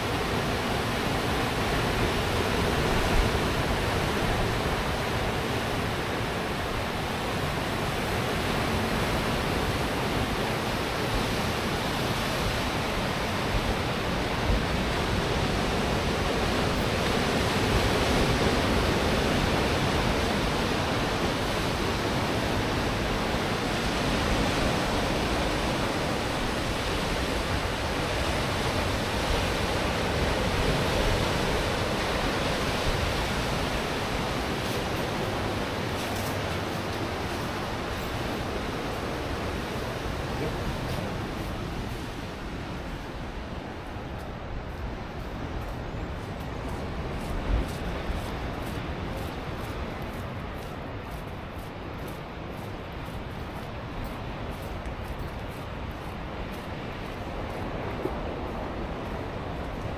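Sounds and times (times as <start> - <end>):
ocean waves breaking: 0.0 - 59.9.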